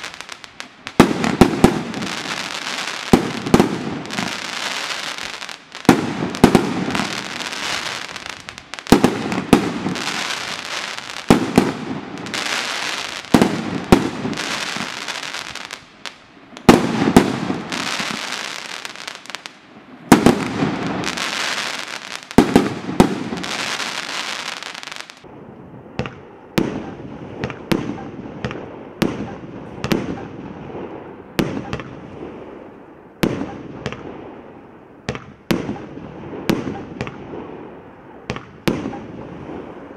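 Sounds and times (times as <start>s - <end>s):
firework bursts crackling: 0.0s - 25.2s
lighter firework shots: 0.0s - 25.3s, 25.9s - 39.9s.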